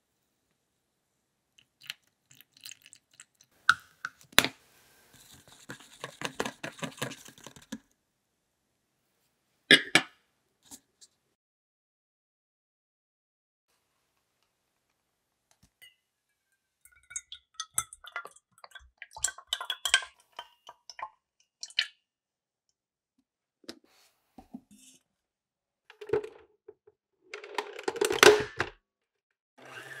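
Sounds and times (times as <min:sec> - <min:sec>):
metal bowl and utensils clinking: 0:25.9 - 0:26.4, 0:27.3 - 0:28.7.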